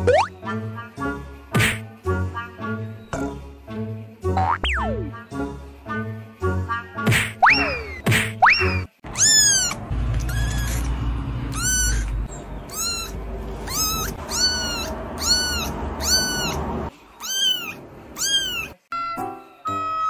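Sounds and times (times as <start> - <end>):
kitten meowing: 9.1 - 10.9, 11.5 - 16.6, 17.2 - 20.0.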